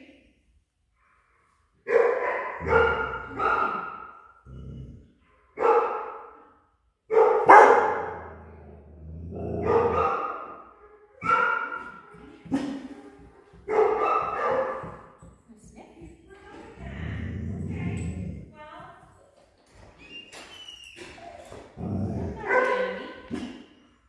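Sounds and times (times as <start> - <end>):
dog barking: 1.8 - 4.2, 5.5 - 6.4, 7.1 - 8.4, 9.6 - 12.8, 13.7 - 15.1, 22.4 - 23.0.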